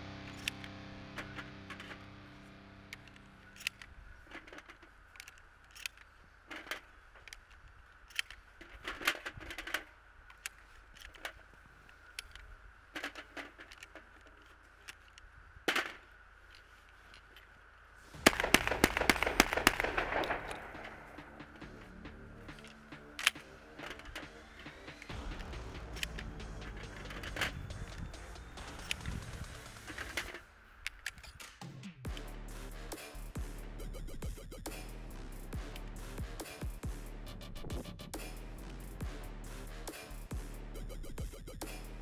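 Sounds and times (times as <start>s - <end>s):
shells clicking into shotgun: 3.0s - 11.5s, 22.5s - 25.1s
rapid shotgun shots: 18.2s - 21.9s.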